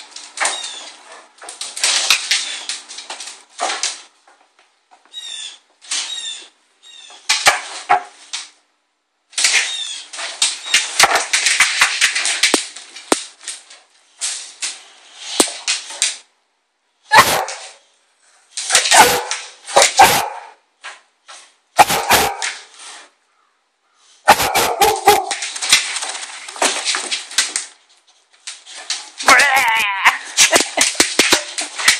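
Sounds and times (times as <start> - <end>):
crackling rustling noise: 0.0 - 31.9
dog barking: 17.1 - 17.7, 18.8 - 20.6, 21.8 - 22.5, 24.3 - 25.4.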